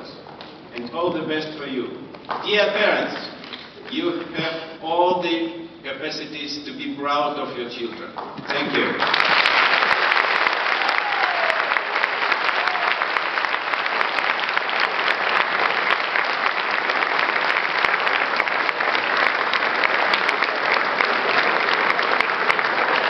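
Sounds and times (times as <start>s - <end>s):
audience applauding: 8.6s - 23.0s.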